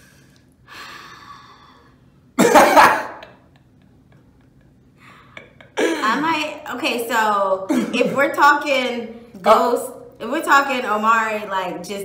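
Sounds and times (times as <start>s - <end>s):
person laughing: 2.4s - 6.4s.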